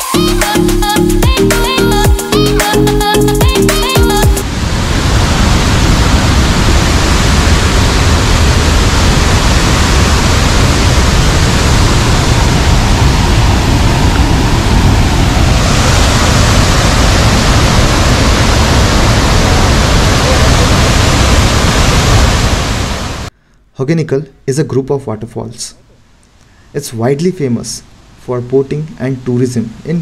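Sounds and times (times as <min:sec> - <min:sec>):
waterfall roaring: 0:04.0 - 0:23.3.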